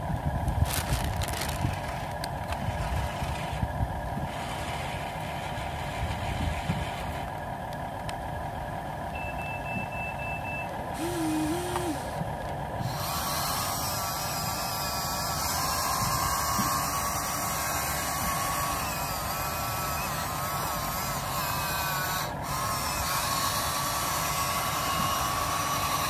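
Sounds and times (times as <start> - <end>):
toy vehicle electric whir: 0.5 - 7.8, 11.0 - 26.0
electronic reversing beeps: 9.2 - 10.7.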